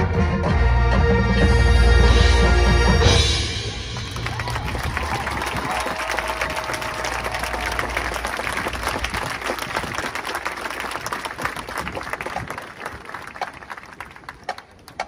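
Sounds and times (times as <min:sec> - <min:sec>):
crowd applauding: 0:03.8 - 0:15.0.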